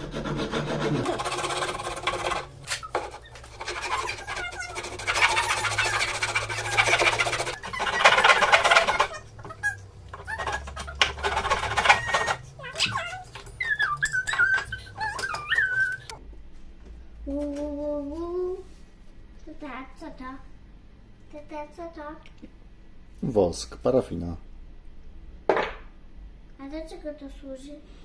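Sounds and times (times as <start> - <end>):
handsaw sawing wood: 0.0 - 12.4
squeaky sliding whistle: 11.7 - 16.1.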